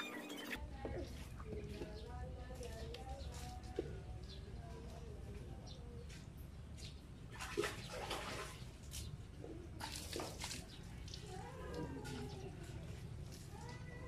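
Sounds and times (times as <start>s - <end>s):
water splashing on scooter: 9.7s - 14.0s.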